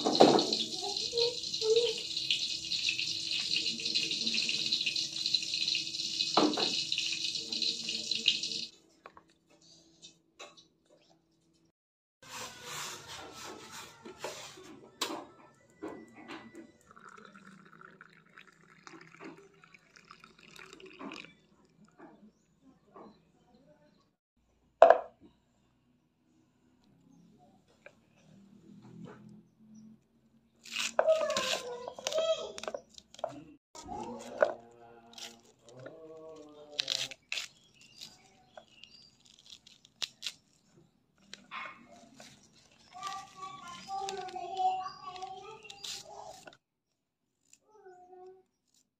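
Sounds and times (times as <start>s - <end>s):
cabbage leaves cracking and crunching: 30.6s - 32.2s, 35.1s - 41.5s.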